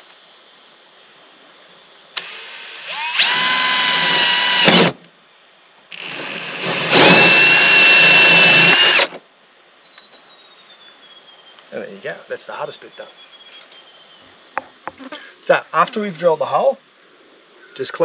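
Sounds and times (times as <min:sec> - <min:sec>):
drill hole saw whining: 0:02.2 - 0:04.9, 0:05.9 - 0:09.2.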